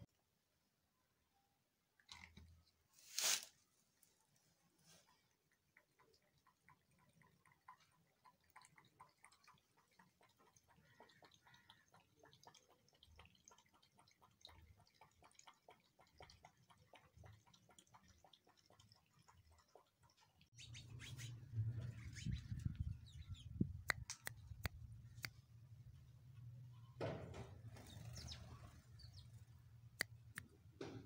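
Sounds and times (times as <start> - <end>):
cat lapping water: 5.0 - 20.6.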